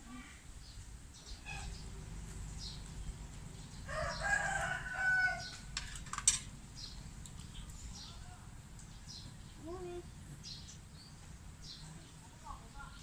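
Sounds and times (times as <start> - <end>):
rooster crowing: 3.9 - 5.7.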